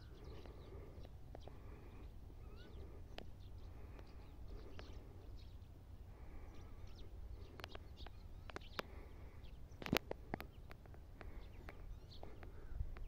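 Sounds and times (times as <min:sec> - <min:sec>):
small birds chirping: 0:00.0 - 0:13.0
soft ticks: 0:09.8 - 0:13.0.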